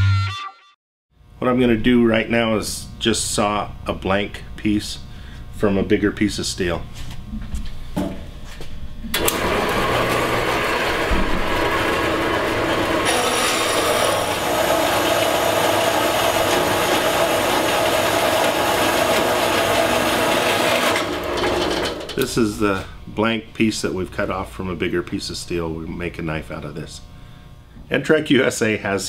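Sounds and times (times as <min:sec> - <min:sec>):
metal-cutting bandsaw running: 0:09.1 - 0:22.6.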